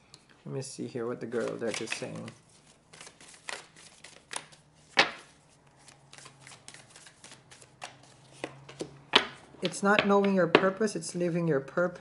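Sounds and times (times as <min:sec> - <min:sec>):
cards being shuffled by hand: 0:01.2 - 0:09.9.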